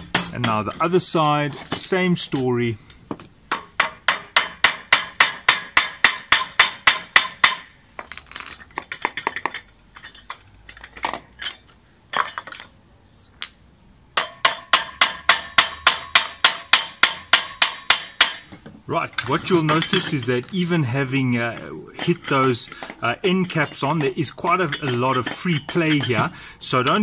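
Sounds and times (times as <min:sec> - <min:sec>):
pliers tapping metal cap: 0:21.6 - 0:27.0.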